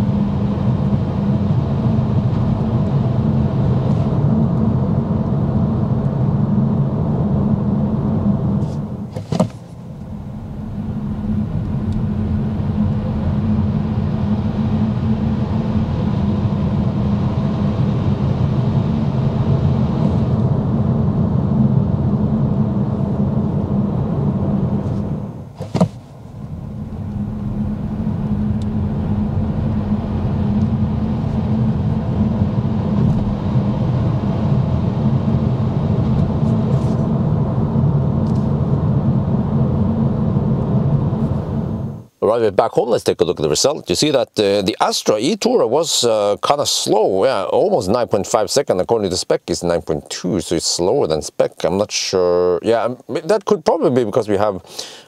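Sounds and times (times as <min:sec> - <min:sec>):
road and tyre rumble in car cabin: 0:00.0 - 0:42.2.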